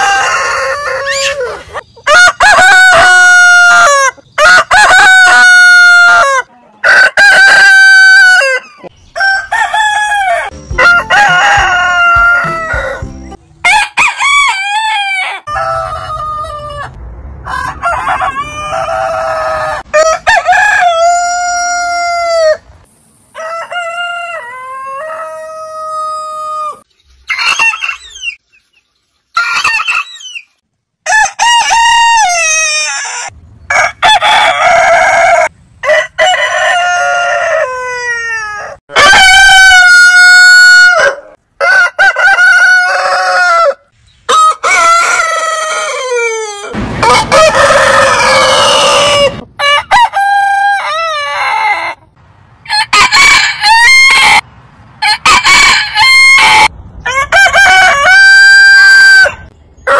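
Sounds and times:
roosters crowing: 0.0s - 22.7s, 23.3s - 28.4s, 31.0s - 59.9s.

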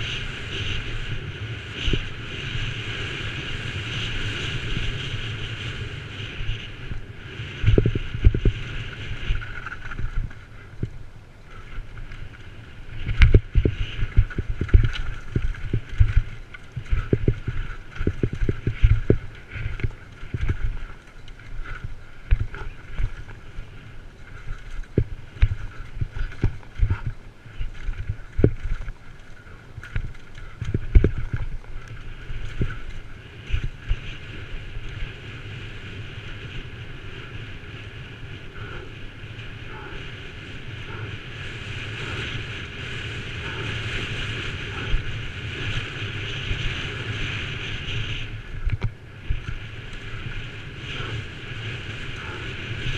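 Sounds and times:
bike rattling over rocks: 0.0s - 37.9s
air rushing on camera: 0.0s - 52.9s.

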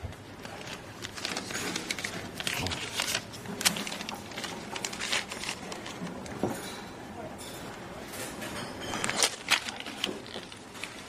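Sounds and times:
banknotes rustling: 0.4s - 6.8s, 8.8s - 11.0s.

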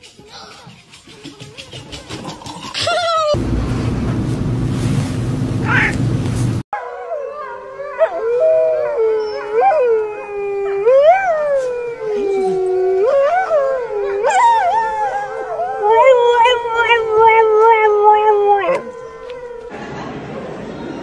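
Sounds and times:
steady low hum: 3.4s - 6.6s
wolf and dog howling: 6.8s - 19.7s.

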